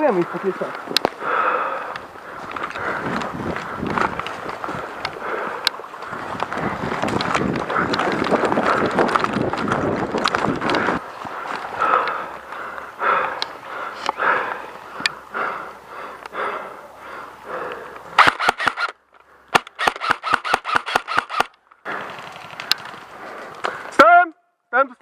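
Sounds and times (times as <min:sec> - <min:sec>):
rustling leaves: 0:00.0 - 0:15.9, 0:18.0 - 0:24.0
running footsteps in dry leaves: 0:00.4 - 0:12.5
airsoft rifle shots: 0:18.2 - 0:18.9, 0:19.5 - 0:21.5.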